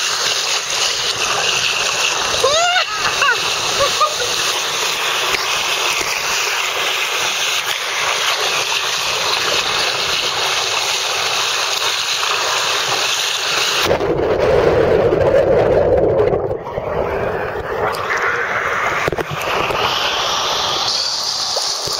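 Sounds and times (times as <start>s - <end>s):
water rushing down waterslide: 0.0s - 21.9s
muffled underwater rumble: 13.8s - 20.9s.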